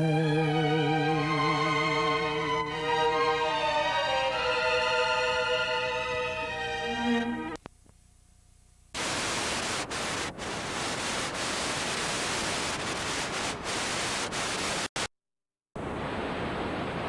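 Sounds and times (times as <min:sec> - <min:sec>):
videotape static hiss: 0:07.5 - 0:15.1.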